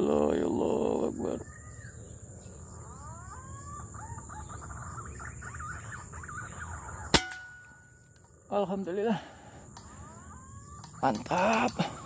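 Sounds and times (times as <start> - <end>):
birds whistling chirps: 0.0 - 8.5
air rifle shot: 7.1 - 7.6.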